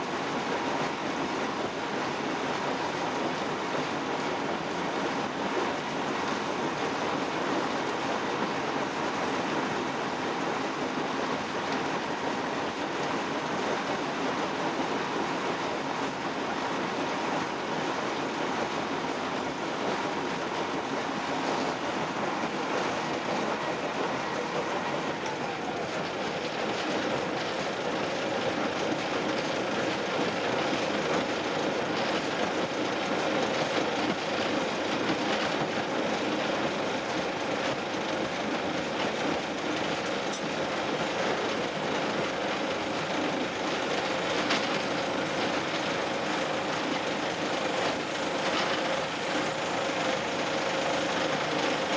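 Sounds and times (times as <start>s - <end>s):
wheels rolling on rails: 0.0s - 51.9s
diesel engine drone: 19.2s - 33.2s.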